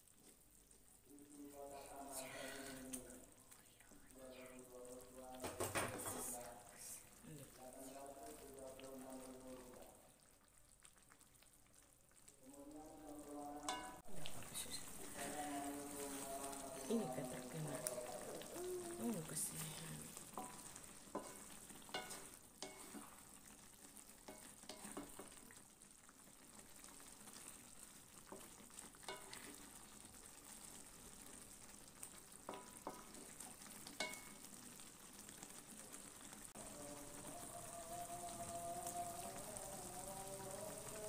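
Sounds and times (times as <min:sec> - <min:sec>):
sauce sizzling in a wok: 0:00.0 - 0:41.0
spatula scraping a pan: 0:14.6 - 0:18.5, 0:19.6 - 0:23.4, 0:24.2 - 0:25.5, 0:28.3 - 0:29.8.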